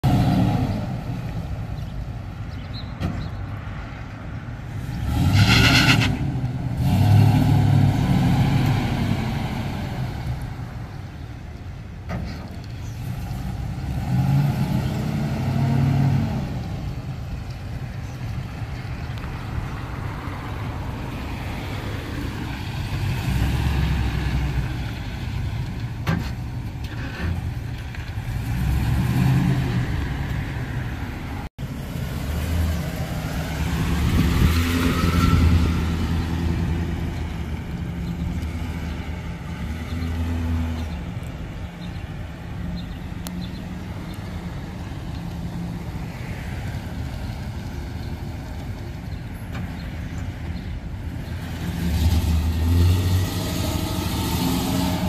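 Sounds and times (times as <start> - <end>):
engine revving: 4.8 - 10.4, 13.0 - 16.9, 22.8 - 25.0, 28.1 - 30.5, 32.0 - 41.2, 51.1 - 55.0.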